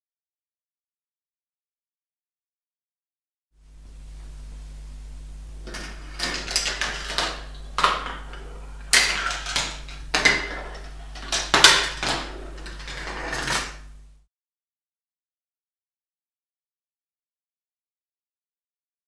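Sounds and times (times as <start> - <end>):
low hum: 3.6 - 14.2
marbles clacking: 5.7 - 13.8
marbles rolling on tracks: 5.7 - 13.8.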